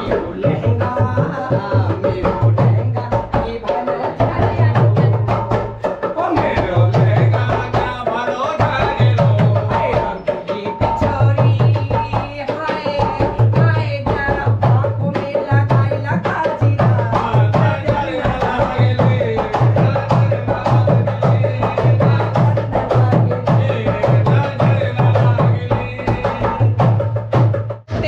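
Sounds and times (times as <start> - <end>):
person singing folk song: 0.0 - 26.9
hand drum beat: 0.0 - 28.0.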